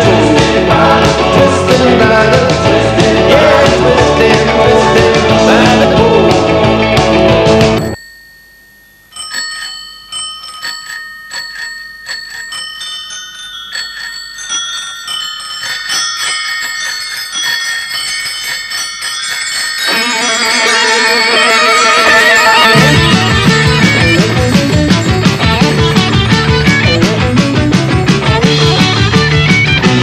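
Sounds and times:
rock band with electric guitar: 0:00.0 - 0:08.0, 0:19.9 - 0:30.0
bicycle bells ringing: 0:07.8 - 0:27.4.

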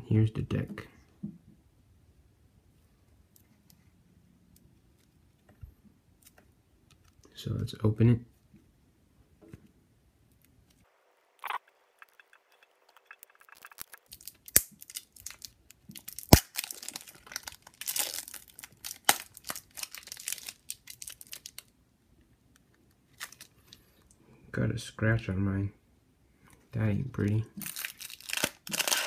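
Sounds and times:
plastic shrink-wrap tearing and crinkling: 0:13.1 - 0:21.7, 0:23.1 - 0:23.5, 0:27.6 - 0:29.0.

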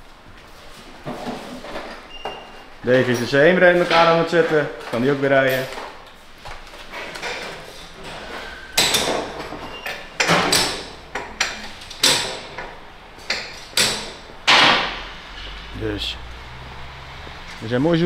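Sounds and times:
metal knocks and clanks: 0:06.9 - 0:15.8.

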